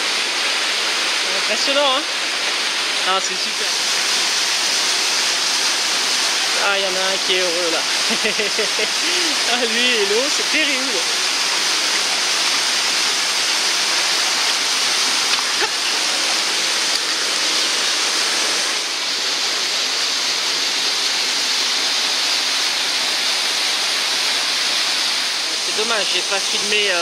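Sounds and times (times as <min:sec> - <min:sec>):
waterfall rushing into pool: 0:00.0 - 0:27.0.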